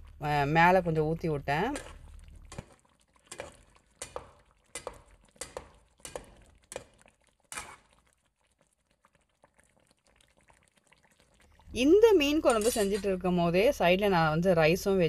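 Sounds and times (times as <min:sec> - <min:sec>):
spatula scraping and knocking in pan: 0:01.7 - 0:08.0, 0:12.4 - 0:13.1.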